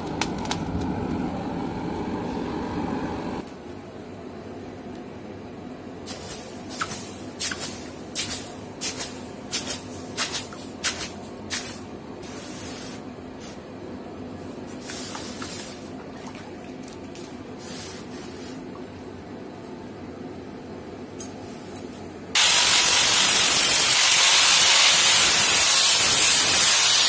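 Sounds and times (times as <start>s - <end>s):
hot blade hissing in water: 22.4s - 27.0s.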